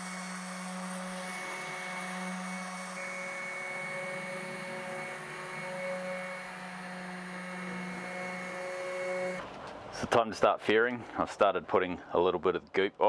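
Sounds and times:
orbital sander humming: 0.0 - 9.4.

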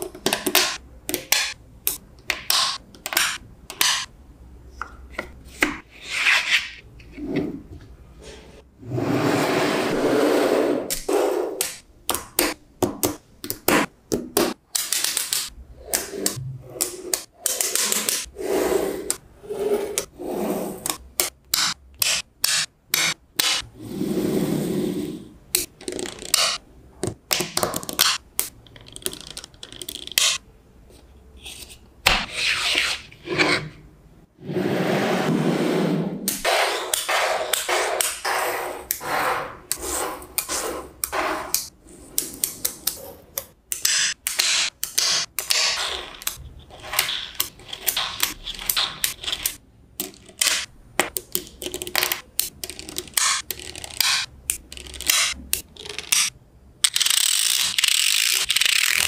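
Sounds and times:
magnetic balls clicking: 27.4 - 30.4, 41.6 - 59.0.

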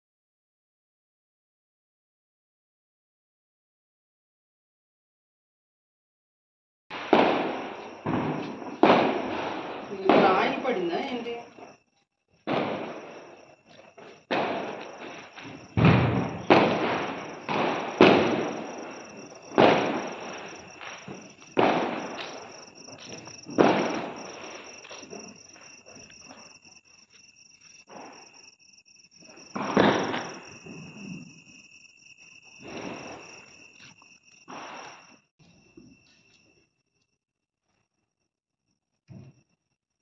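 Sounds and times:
firecrackers banging: 6.9 - 11.8, 12.4 - 28.5, 29.2 - 31.6, 32.2 - 35.2
crickets chirring: 6.9 - 40.0.

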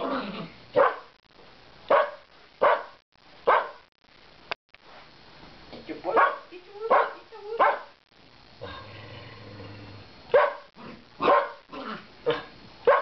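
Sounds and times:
dog barking: 0.8 - 1.1, 1.9 - 3.8, 6.1 - 8.0, 10.3 - 13.0.

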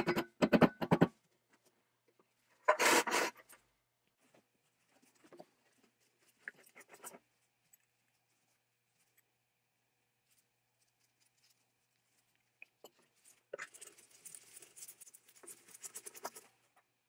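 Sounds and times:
faint rubbing and clicking: 1.3 - 17.0
rough metal scrape: 2.6 - 3.5.

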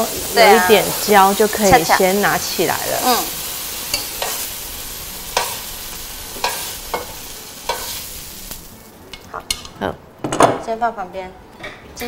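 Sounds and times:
vegetables sizzling in a wok: 0.0 - 9.6.

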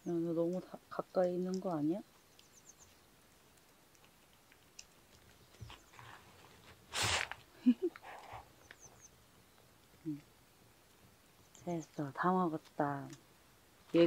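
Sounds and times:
cats licking: 0.5 - 8.8.

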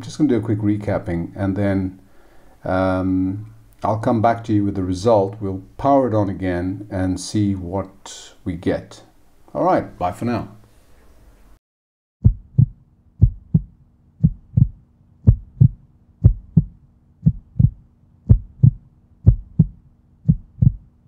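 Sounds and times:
heartbeat-like double thump: 12.2 - 20.9.

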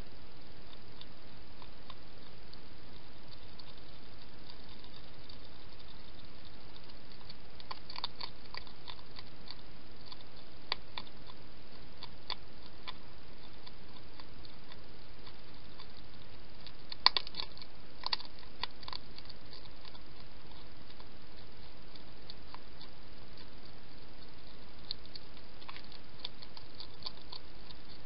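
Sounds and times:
hedgehog chewing crunchily: 0.0 - 28.0
steady hiss: 0.0 - 28.0.

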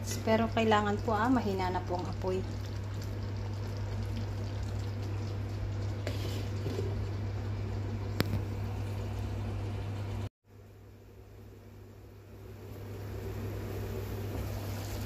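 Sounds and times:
steady low hum: 0.0 - 15.0
sauce bubbling in pan: 0.8 - 8.2.

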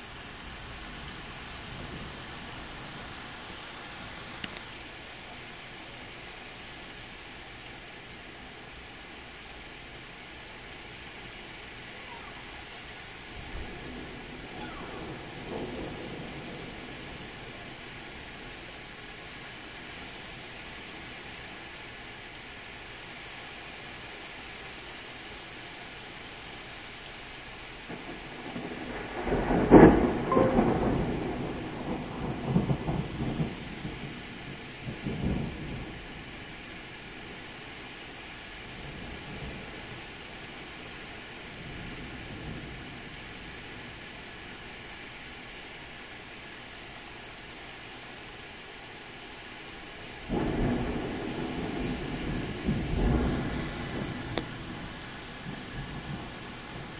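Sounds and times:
steady rain: 0.0 - 56.9
thunder clap and rumbling: 13.4 - 17.5, 28.2 - 36.0, 50.3 - 56.9.

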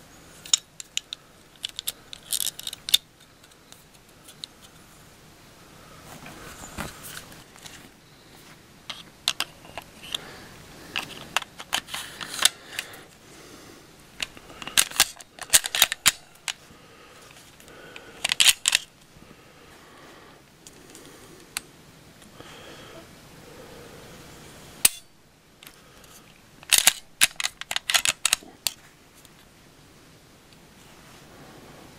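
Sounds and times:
pistol parts clicking: 0.4 - 4.8, 8.9 - 10.2, 10.9 - 13.0, 14.2 - 16.6, 17.3 - 18.9, 24.8 - 29.4
pistol parts rattling: 0.4 - 4.8, 8.9 - 10.2, 10.9 - 13.0, 14.1 - 16.6, 17.2 - 19.1, 24.8 - 29.5.

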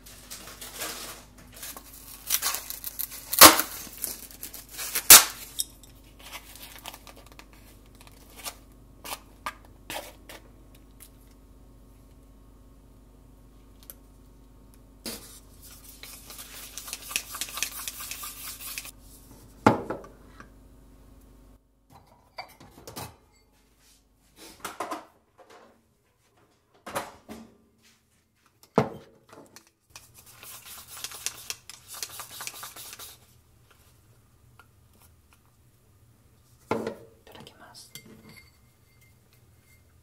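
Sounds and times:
chopsticks whisking in a ceramic bowl: 15.1 - 19.0, 29.9 - 33.3.

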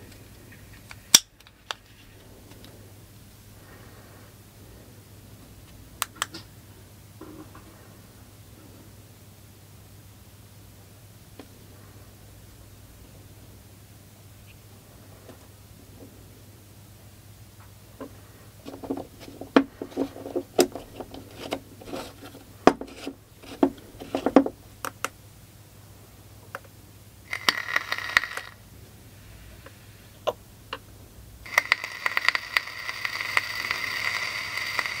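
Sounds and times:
coil sizzling with crackling pops: 31.5 - 35.0.

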